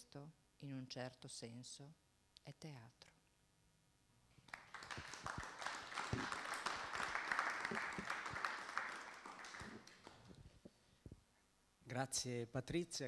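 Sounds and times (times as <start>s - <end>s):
audience applauding: 4.5s - 10.4s.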